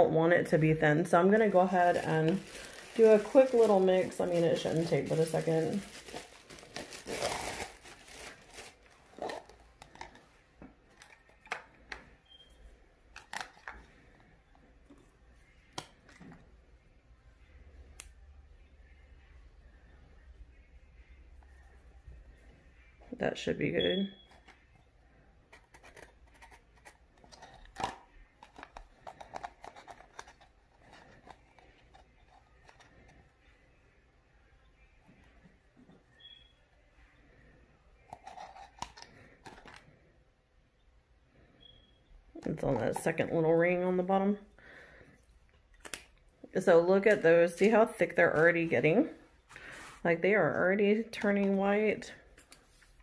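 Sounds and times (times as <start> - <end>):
plastic crinkling: 1.0 - 10.3, 25.7 - 33.1.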